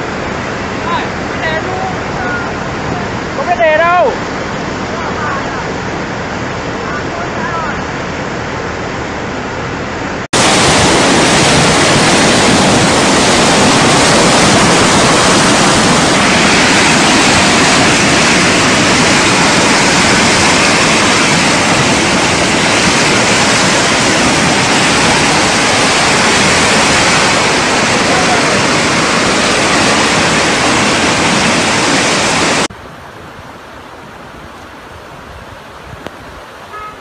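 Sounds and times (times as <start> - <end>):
flood water roaring: 0.0 - 37.0.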